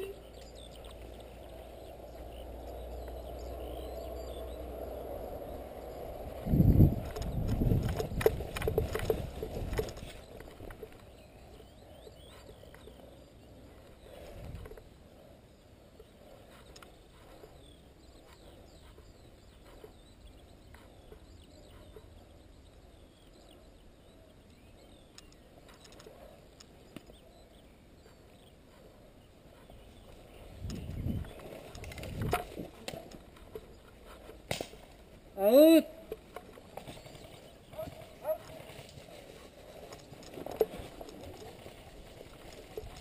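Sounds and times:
faint outdoor ambience: 0.0 - 43.0
faint clicks: 16.0 - 17.6, 24.4 - 27.5.

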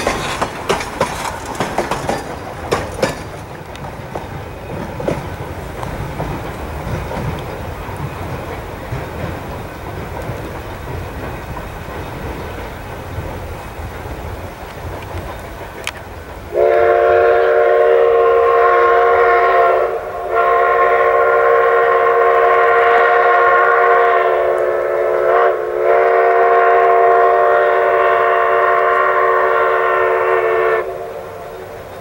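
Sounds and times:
low rumble of train: 0.0 - 32.0
steam locomotive whistle: 16.5 - 32.0.

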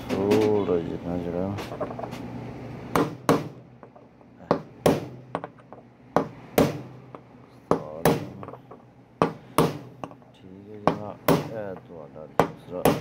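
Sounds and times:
hammer strikes on metal tool: 2.9 - 3.6, 4.4 - 5.5, 6.2 - 8.6, 9.2 - 10.2, 10.8 - 11.8, 12.4 - 13.0.

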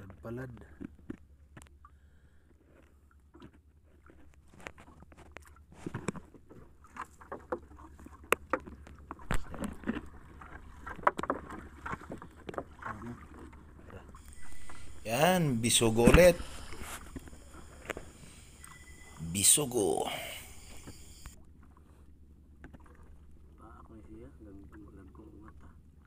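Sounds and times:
steady low hum: 8.8 - 26.0.

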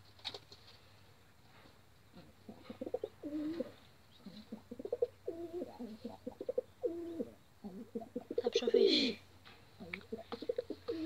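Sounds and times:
pigeons cooing: 2.2 - 9.2, 9.8 - 11.0.

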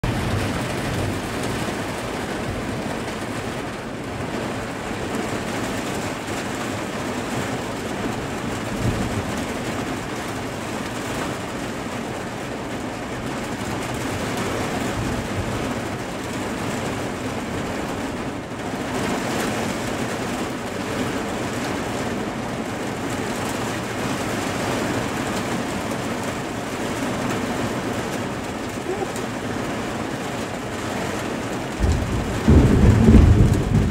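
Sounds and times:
low thunder rumble: 0.0 - 2.9, 31.8 - 33.9
heavy rain on window: 0.0 - 33.9.

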